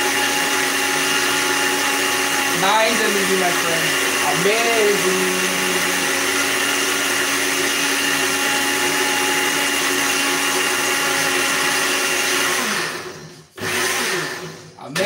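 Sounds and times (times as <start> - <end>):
blender motor running: 0.0 - 15.0.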